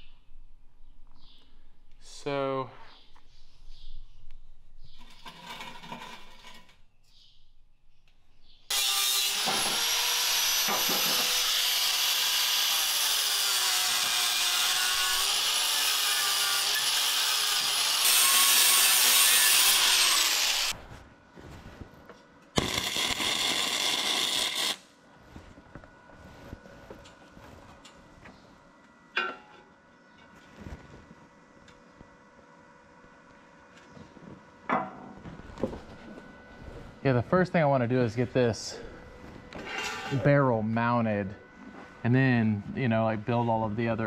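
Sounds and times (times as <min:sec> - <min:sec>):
angle grinder grinding steel: 0:08.7 - 0:20.8, 0:22.6 - 0:24.8.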